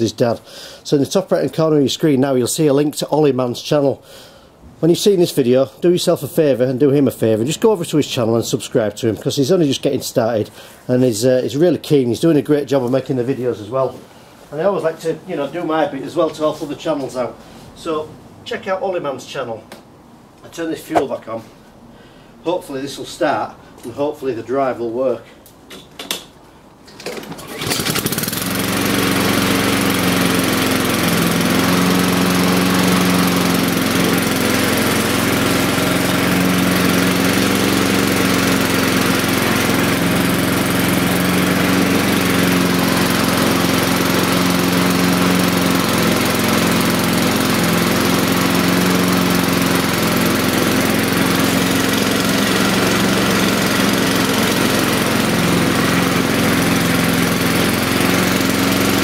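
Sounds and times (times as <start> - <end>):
lawnmower engine running: 27.0 - 59.0.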